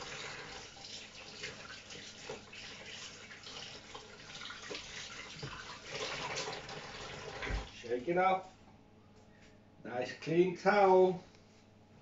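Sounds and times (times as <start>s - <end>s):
tap running: 4.7s - 7.7s.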